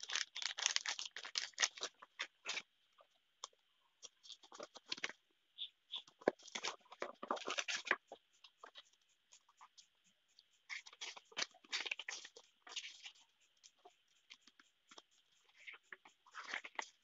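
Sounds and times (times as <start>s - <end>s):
paper rustling and crinkling: 0.0s - 2.6s, 6.2s - 8.0s.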